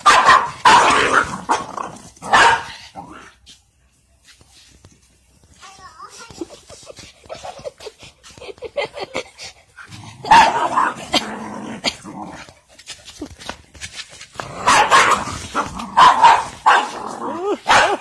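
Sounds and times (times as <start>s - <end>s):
dog growling: 9.8s - 12.5s.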